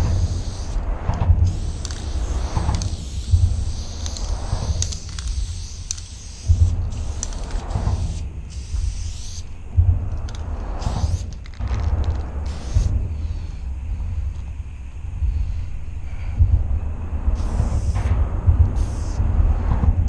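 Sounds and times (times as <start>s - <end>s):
spray paint can hissing: 0.0s - 13.6s, 17.3s - 19.3s
wind rumble on microphone: 0.0s - 20.0s.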